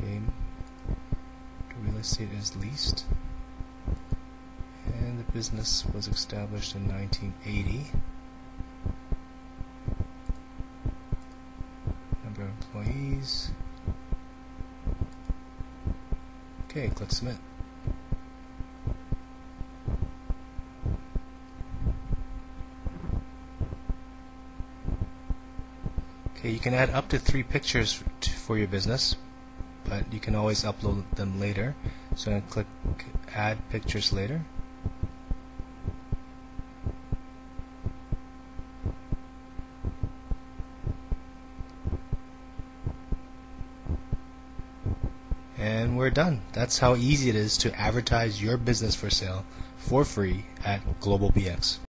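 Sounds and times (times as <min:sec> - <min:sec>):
soft low thumps: 0:00.0 - 0:02.2, 0:02.8 - 0:06.1, 0:07.7 - 0:12.3, 0:12.9 - 0:27.0, 0:31.8 - 0:34.0, 0:34.6 - 0:45.5
electrical hum: 0:00.0 - 0:51.9.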